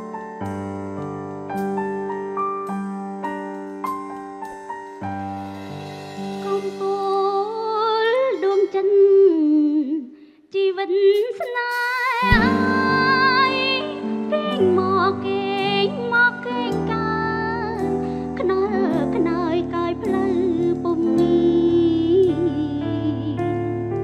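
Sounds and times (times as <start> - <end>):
held keyboard chords: 0.0 - 9.3, 12.2 - 24.0
woman singing a slow ballad: 6.4 - 23.8
deep bass note: 12.3 - 13.6.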